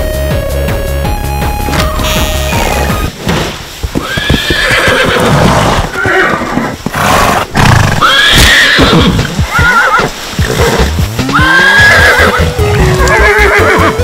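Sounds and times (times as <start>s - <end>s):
horse whinnies: 4.0s - 14.0s.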